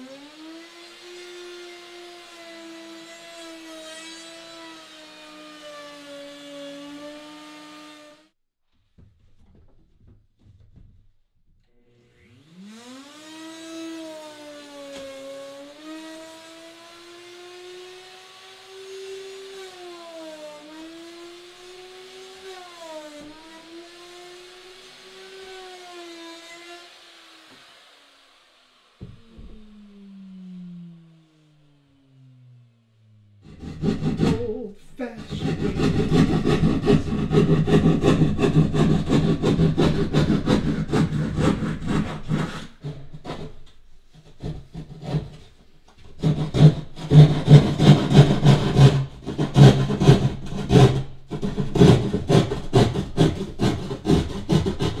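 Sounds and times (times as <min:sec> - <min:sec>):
electric router cutting wood: 0:00.0 - 0:08.3, 0:11.7 - 0:42.7.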